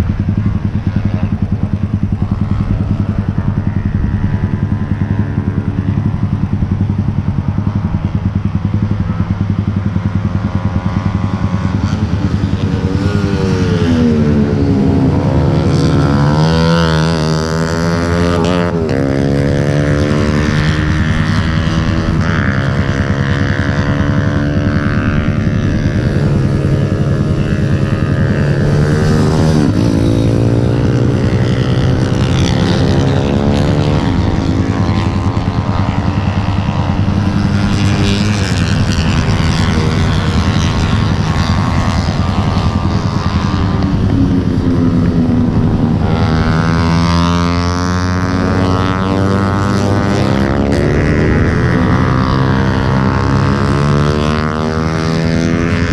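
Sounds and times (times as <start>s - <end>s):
motorcycle engines revving: 0.0s - 55.9s.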